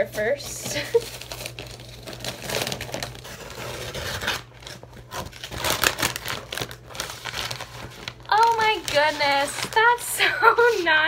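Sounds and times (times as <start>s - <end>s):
paper crinkling and rustling: 0.0s - 11.0s.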